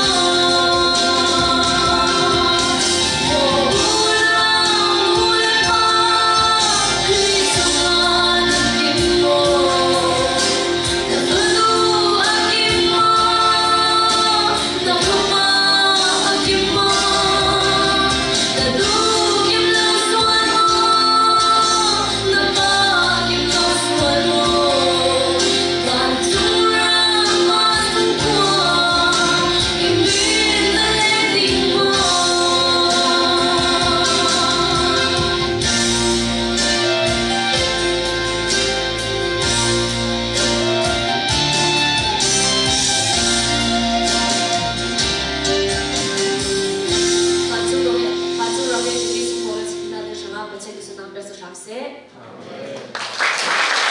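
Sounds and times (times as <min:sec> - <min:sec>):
woman singing worship song: 0:00.0 - 0:36.1
instrumental accompaniment: 0:00.0 - 0:51.4.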